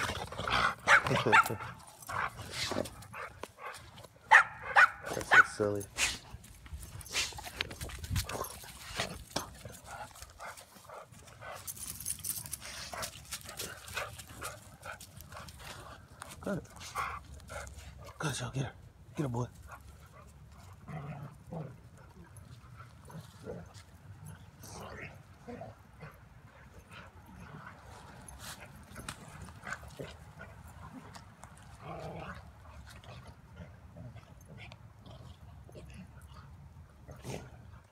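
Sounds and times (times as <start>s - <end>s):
dogs play-fighting: 0.0s - 18.2s, 18.8s - 37.9s
dogs scuffling: 5.1s - 18.1s.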